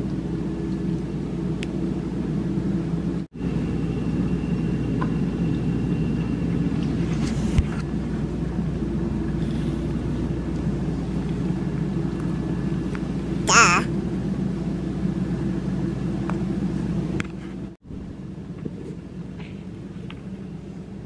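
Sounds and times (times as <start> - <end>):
cat high-pitched call: 13.5 - 13.9.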